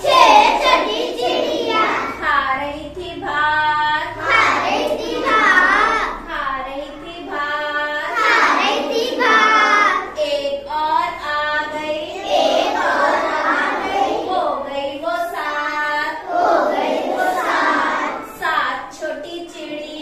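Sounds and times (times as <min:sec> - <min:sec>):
children singing in unison: 0:00.0 - 0:02.3, 0:04.0 - 0:10.6, 0:11.6 - 0:18.5.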